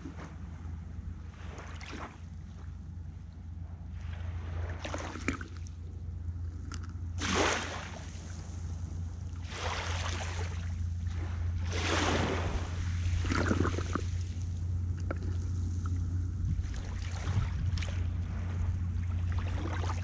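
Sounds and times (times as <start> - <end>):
waves breaking on shore: 1.2 - 2.3, 3.9 - 5.8, 7.2 - 20.0
wind on microphone: 16.0 - 20.0.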